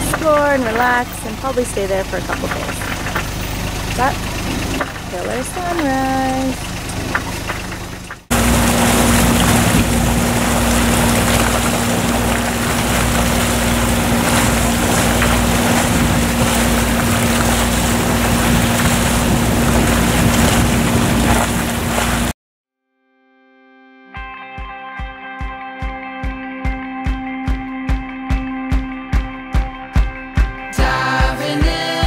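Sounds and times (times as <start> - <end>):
boat engine running: 0.0 - 22.4
water noise: 0.0 - 22.4
wind: 0.0 - 22.4.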